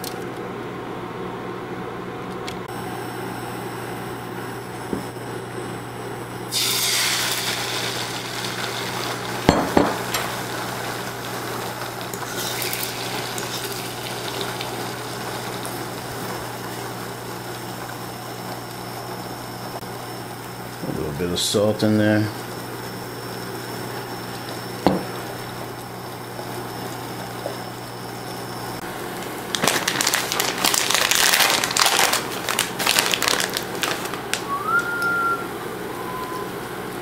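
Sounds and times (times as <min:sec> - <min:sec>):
eggs sizzling in a frying pan: 0:06.5 - 0:20.3.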